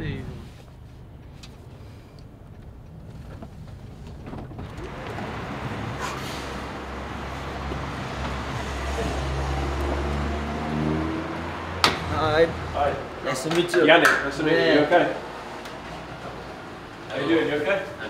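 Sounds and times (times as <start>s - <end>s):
van engine rumbling: 0.0s - 13.4s.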